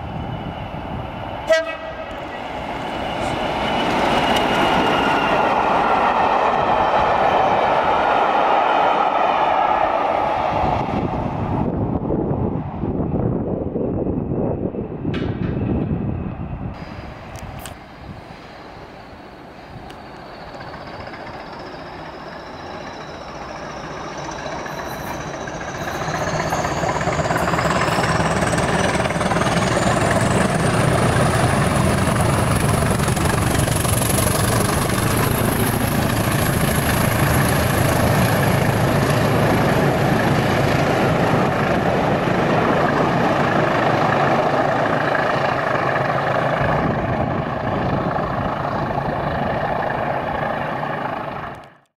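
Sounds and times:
diesel locomotives passing: 0.0s - 51.9s
high whistle climbing in pitch: 19.7s - 29.0s.

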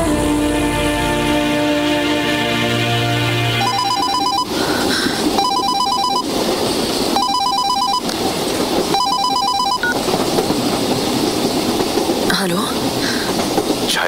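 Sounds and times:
telephone ringing: 3.6s - 6.3s, 7.2s - 8.1s, 8.9s - 10.0s.

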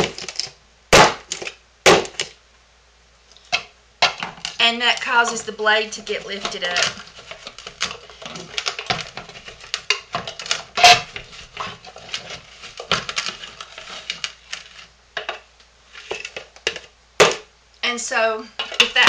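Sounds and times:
spatula scraping plastic bowl: 4.1s - 14.9s, 15.9s - 16.8s, 18.6s - 19.0s.

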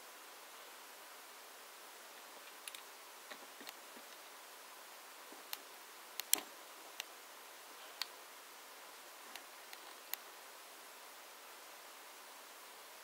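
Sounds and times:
steady faint hiss: 0.0s - 13.0s
small sharp clicks and taps: 2.4s - 4.2s, 5.4s - 7.1s.

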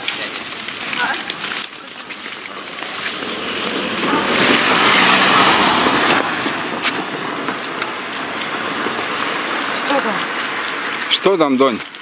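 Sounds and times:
vehicle passing by: 2.3s - 11.0s.

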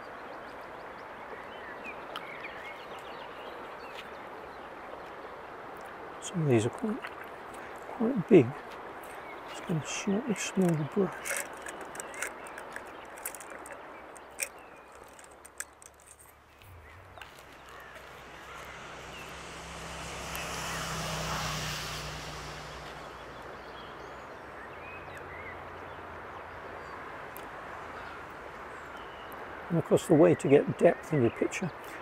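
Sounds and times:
birds chirping: 0.0s - 32.0s
vehicle engine passing: 16.5s - 24.8s.

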